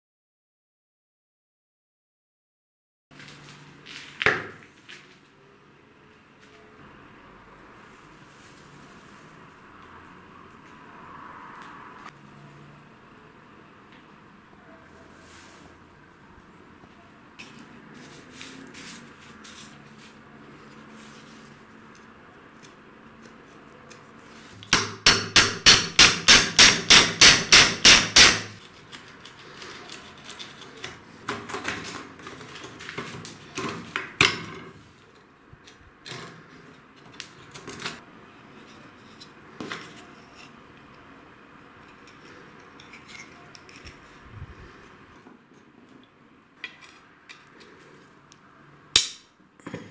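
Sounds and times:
hammer strikes: 24.6 - 28.6.

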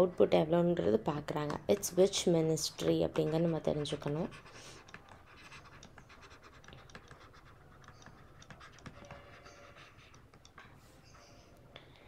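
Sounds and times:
stylus tapping on tablet screen: 1.4 - 2.2, 4.9 - 9.3.

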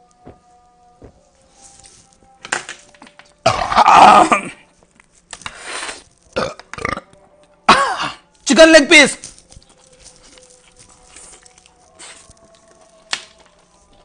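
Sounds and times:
man belching: 3.4 - 4.6, 6.4 - 8.2.

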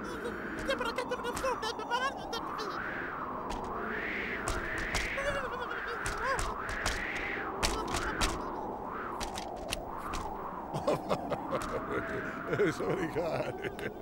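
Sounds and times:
wavering rising and falling tone: 0.0 - 13.2
scattered clicks: 4.4 - 5.2, 6.0 - 8.6, 9.2 - 10.3
squawking cartoon voices: 5.0 - 6.7, 7.6 - 8.7.

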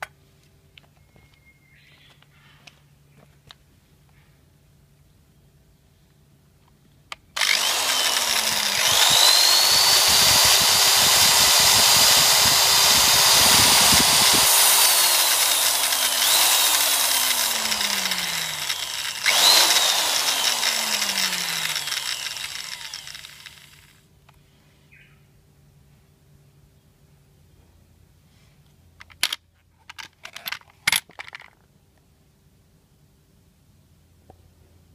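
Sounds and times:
drill trigger click: 7.4 - 23.8
electric drill motor whining: 7.4 - 24.0.

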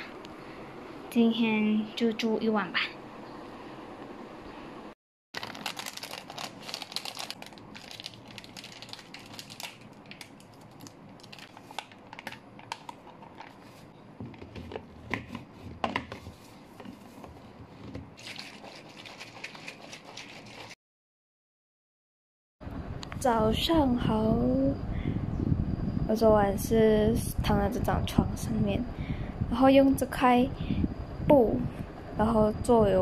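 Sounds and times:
powder poured into water bottle: 5.4 - 12.2, 18.2 - 20.8
plastic pouch crinkling: 5.4 - 13.8, 18.2 - 20.8
bottle being shaken: 18.2 - 20.8.

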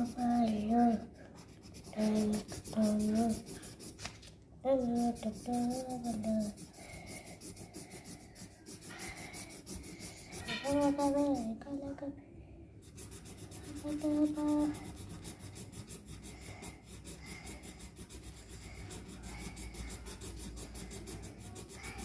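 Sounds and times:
pen scribbling on paper: 0.0 - 4.0, 4.8 - 11.6, 12.8 - 22.0
child humming: 1.9 - 3.6, 4.7 - 11.6, 13.7 - 15.0.

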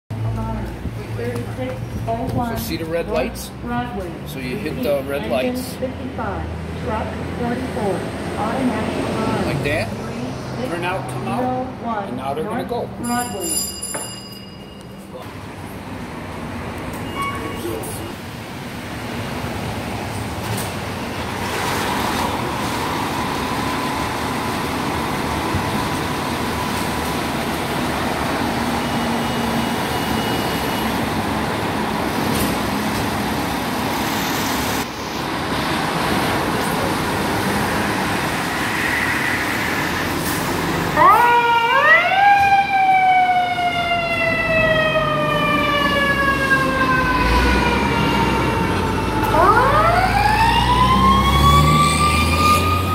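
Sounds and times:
fire apparatus running: 15.2 - 52.9
fire engine siren winding: 40.9 - 52.9.

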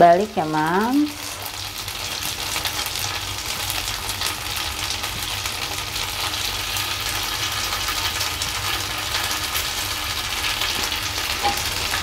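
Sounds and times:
meat skewers sizzling on grill pan: 0.1 - 12.0.

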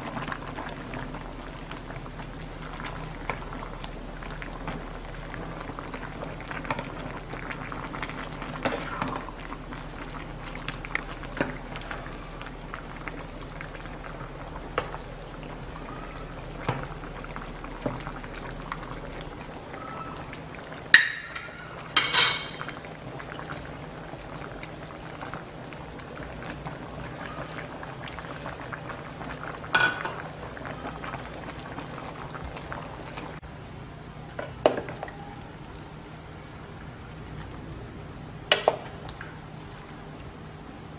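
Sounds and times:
soup bubbling: 0.0 - 40.9
ladle clinking against metal pot: 21.0 - 22.7.

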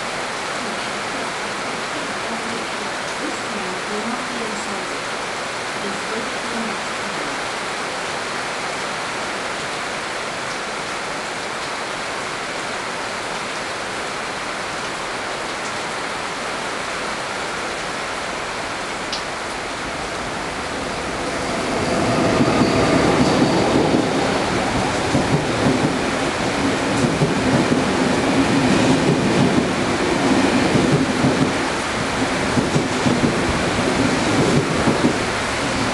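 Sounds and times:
heavy rain pouring: 0.0 - 35.9
train rumbling past: 17.2 - 35.9.

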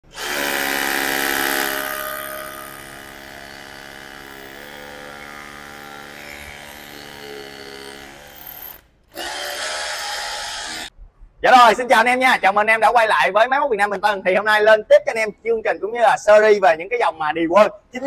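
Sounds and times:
rotary hammer drilling into concrete: 0.1 - 10.9.

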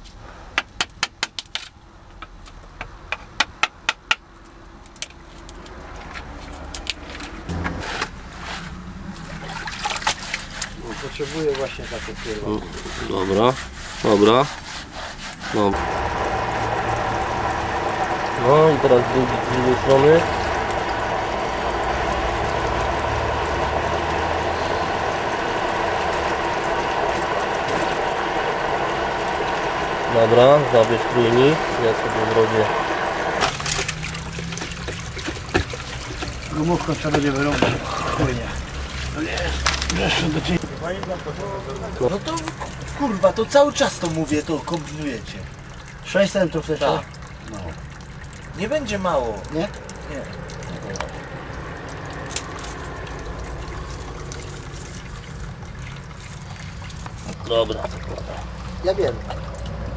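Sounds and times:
wet sponge scrubbing pipe: 7.5 - 51.3, 51.9 - 59.2
steady tones: 11.2 - 33.4
low hum: 15.7 - 33.5, 49.4 - 57.2.

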